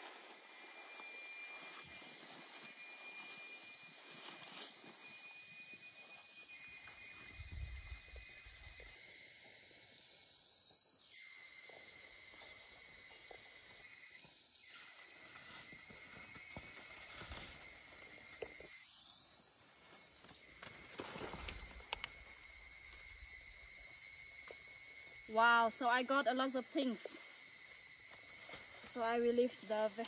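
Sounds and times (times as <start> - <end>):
leaves rustling: 0.0 - 7.2, 14.6 - 18.6, 19.2 - 23.1, 26.5 - 30.0
insects chirring: 0.0 - 30.0.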